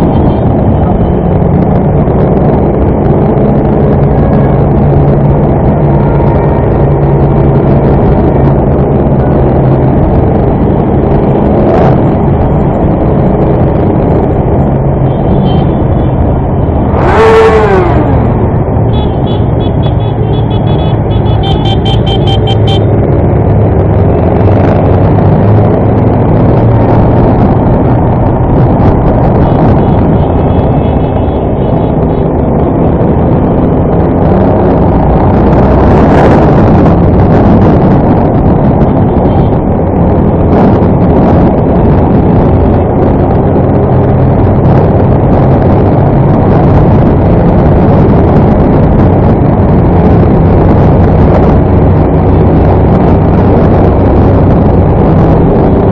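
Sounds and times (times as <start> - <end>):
wind noise on microphone: 0.0 - 55.9.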